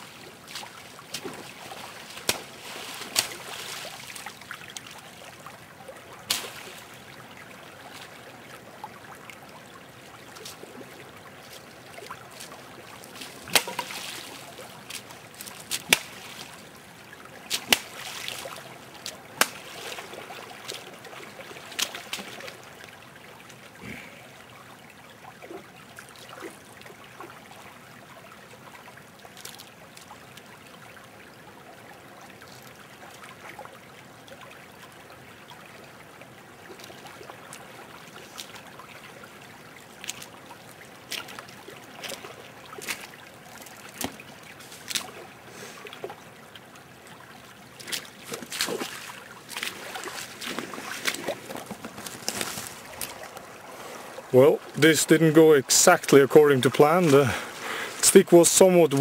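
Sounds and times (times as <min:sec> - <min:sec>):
boots splashing through water: 0:00.0 - 0:05.5, 0:06.1 - 0:08.4, 0:10.0 - 0:23.0, 0:36.7 - 0:46.2, 0:47.0 - 0:55.3, 0:56.0 - 0:59.0
stream trickling over stones: 0:00.0 - 0:59.0.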